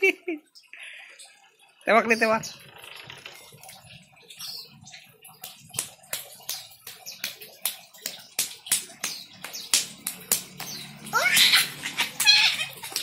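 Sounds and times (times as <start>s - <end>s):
hand slapping tile floor: 5.4s - 13.0s.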